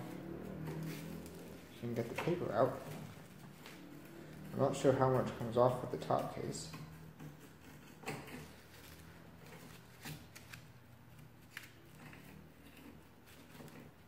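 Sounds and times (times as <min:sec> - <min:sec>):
paper rustling: 0:08.4 - 0:14.0.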